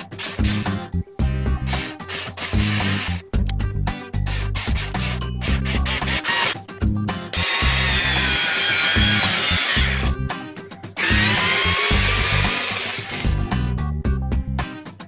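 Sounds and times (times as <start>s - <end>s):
background music: 0.0s - 15.0s
electric screwdriver motor whine: 2.1s - 3.2s, 4.6s - 6.6s, 7.4s - 10.1s, 11.0s - 13.4s.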